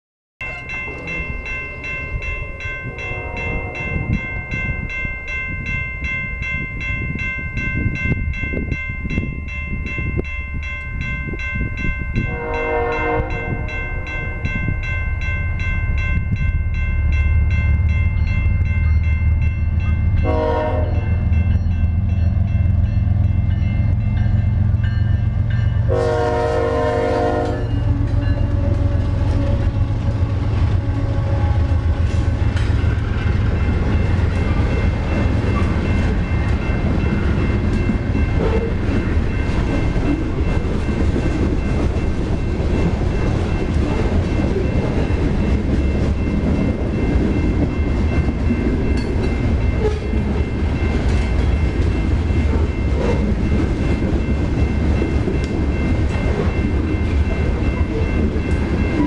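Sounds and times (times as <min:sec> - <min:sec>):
crossing bell ringing: 0:00.4 - 0:59.0
diesel locomotive rumble: 0:00.4 - 0:59.0
train wheel noise: 0:00.4 - 0:59.0
train horn blasts: 0:02.7 - 0:04.2, 0:12.2 - 0:14.3, 0:20.2 - 0:21.2, 0:25.9 - 0:32.4, 0:49.8 - 0:50.2.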